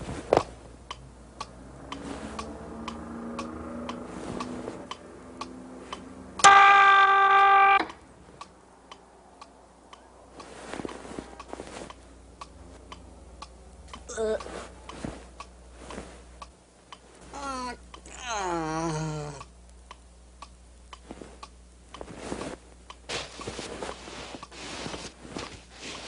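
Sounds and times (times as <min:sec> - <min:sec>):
clock ticking: 0:00.4 - 0:17.1, 0:19.3 - 0:22.0
loud buzzing tone: 0:06.4 - 0:08.0.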